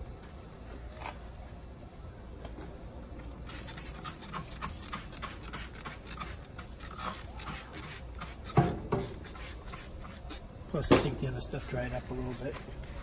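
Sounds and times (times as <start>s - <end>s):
spray bottle spritzes: 3.4s - 10.4s.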